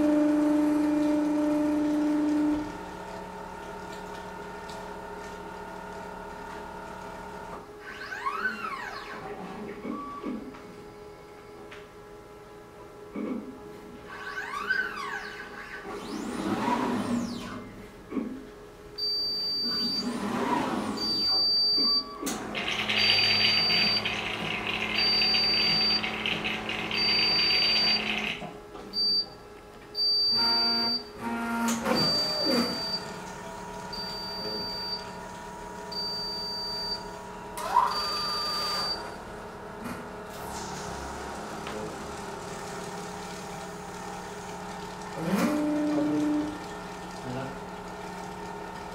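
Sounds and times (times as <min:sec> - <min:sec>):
robotic motors whirring: 0:14.1 - 0:17.7.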